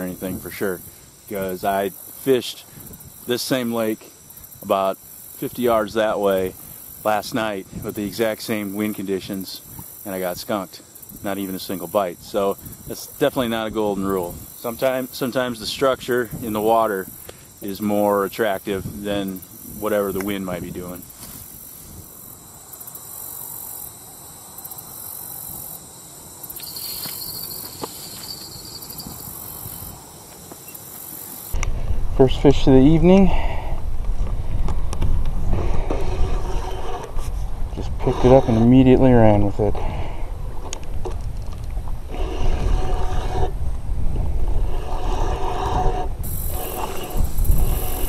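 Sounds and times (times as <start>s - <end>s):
wind noise on microphone: 0.0s - 1.8s, 2.6s - 3.4s, 5.5s - 10.5s, 11.1s - 22.4s, 26.6s - 30.1s, 31.5s - 48.0s
insects chirping in pulsing trills: 0.0s - 33.9s, 41.8s - 48.0s
high buzz: 24.6s - 31.6s
fishing reel whirring: 26.5s - 30.0s, 44.8s - 48.0s.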